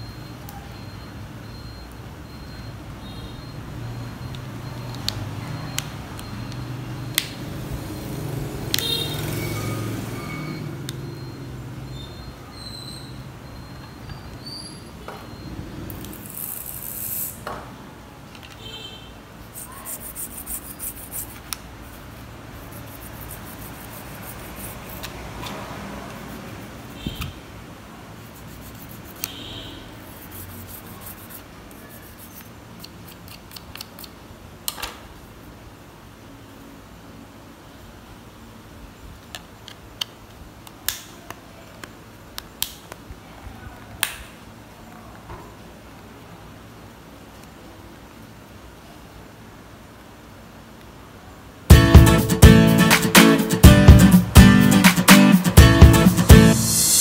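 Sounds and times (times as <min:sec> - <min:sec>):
toothbrush scrubbing plastic: 0:19.5 - 0:25.4, 0:28.2 - 0:29.3, 0:30.0 - 0:33.3.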